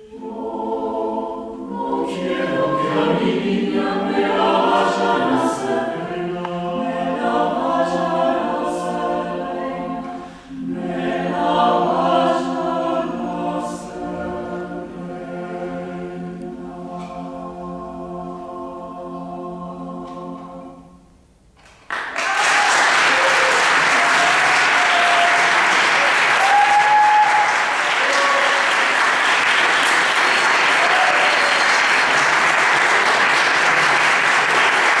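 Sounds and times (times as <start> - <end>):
choir holding chord: 0.0 - 21.1
audience applause: 21.8 - 35.0.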